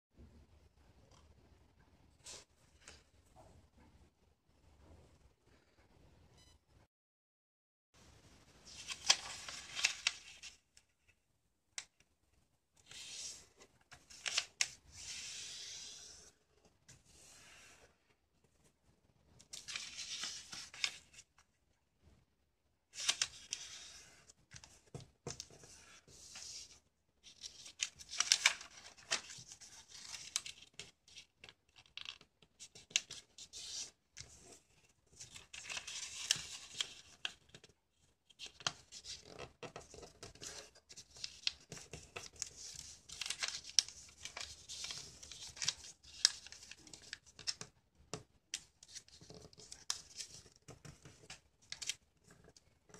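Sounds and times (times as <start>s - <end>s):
paper rustling and creasing: 8.6s - 11.1s, 12.8s - 17.9s, 19.4s - 21.4s, 22.9s - 52.9s.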